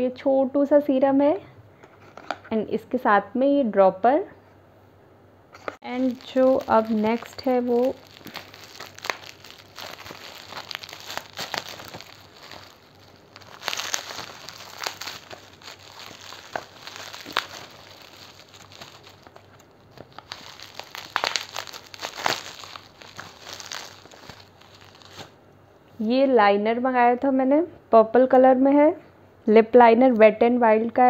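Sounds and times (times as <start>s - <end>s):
bubble wrap crinkling and crackling: 5.7s - 25.4s.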